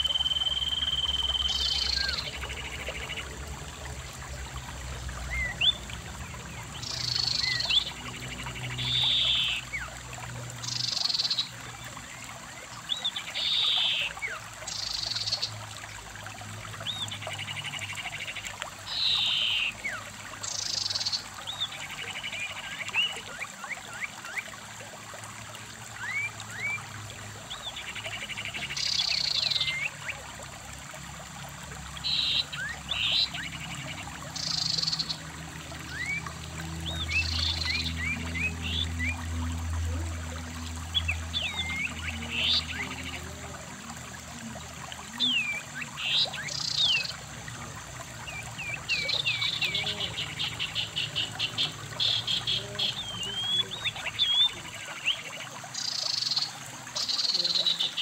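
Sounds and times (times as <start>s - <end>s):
stream running over rocks: 0.0s - 58.0s
birds chirping: 32.0s - 58.0s.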